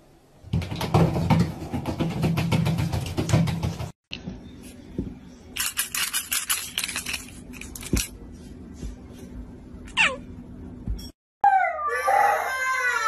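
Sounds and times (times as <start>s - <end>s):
small hard objects rattling: 5.6s - 8.0s.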